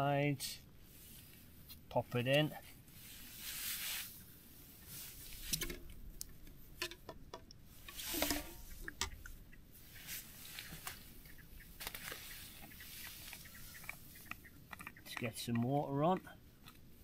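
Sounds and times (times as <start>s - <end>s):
camping gear knocks and clicks: 5.5s - 9.2s
clothing rustling: 7.7s - 13.6s
bottle cap opening: 7.9s - 9.2s.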